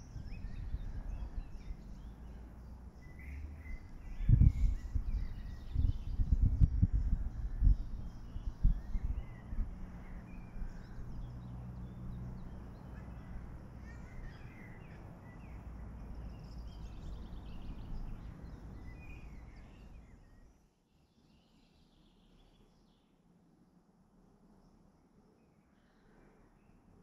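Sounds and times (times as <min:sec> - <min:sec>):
birds chirping and calling: 0:12.4 - 0:20.4
bird trill: 0:12.4 - 0:20.6.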